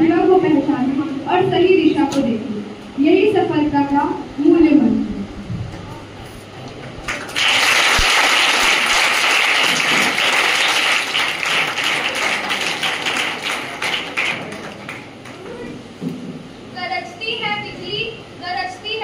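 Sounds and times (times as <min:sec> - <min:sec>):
audience clapping: 0:06.9 - 0:15.7.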